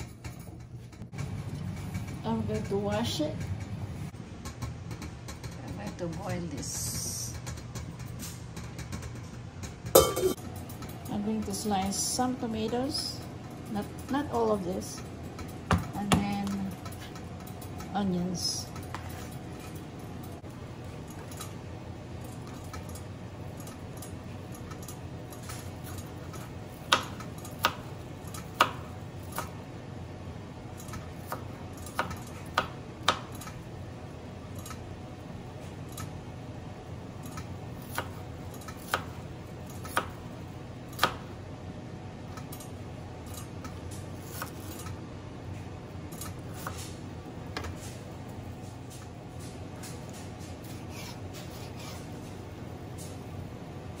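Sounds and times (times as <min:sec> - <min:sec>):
low steady hum: 0:00.0 - 0:54.0
knife slicing onion: 0:37.8 - 0:40.2, 0:40.9 - 0:41.2, 0:44.2 - 0:44.9.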